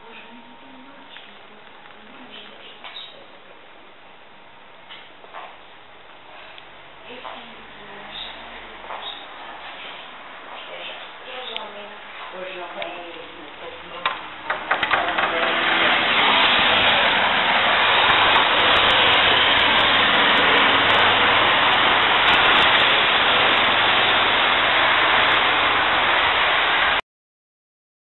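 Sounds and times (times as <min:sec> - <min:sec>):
loud steady rushing noise: 0:14.3 - 0:27.0.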